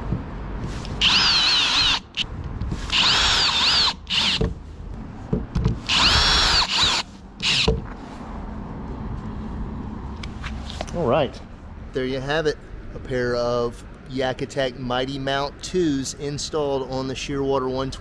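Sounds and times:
cordless drill whining: 0:01.0 - 0:02.2, 0:02.9 - 0:04.4, 0:05.9 - 0:07.7.

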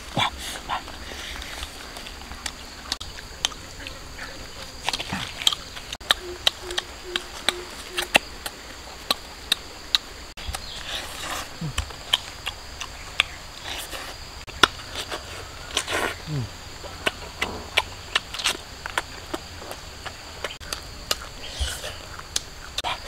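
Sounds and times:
puppies crunching bones: 0:00.0 - 0:23.0.

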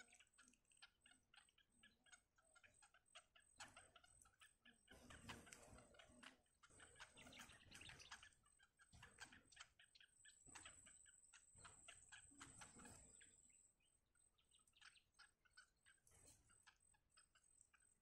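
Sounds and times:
nestlings ticking begging calls: 0:00.0 - 0:18.0.

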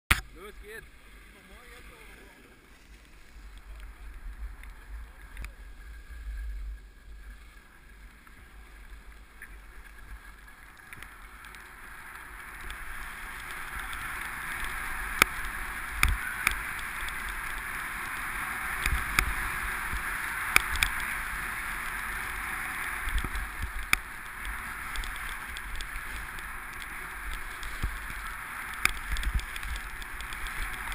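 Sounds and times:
skis scraping over snow: 0:00.3 - 0:30.9
wind rumble on microphone: 0:12.3 - 0:30.9.

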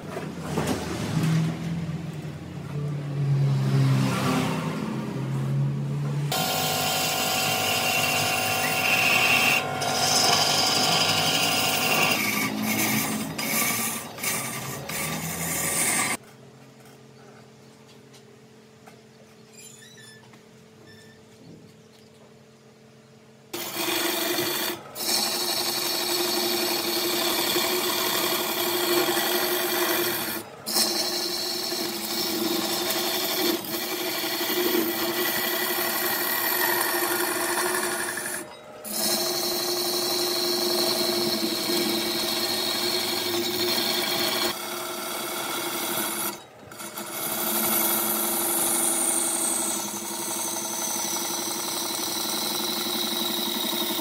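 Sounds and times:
tool scraping spinning wood: 0:06.3 - 0:16.2, 0:23.6 - 0:54.0
wood lathe hum: 0:06.3 - 0:16.2, 0:23.6 - 0:54.0.

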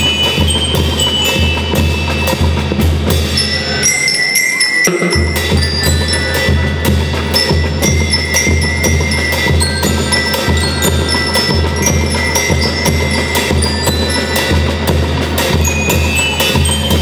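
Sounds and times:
bell lyres melody: 0:00.0 - 0:17.0.

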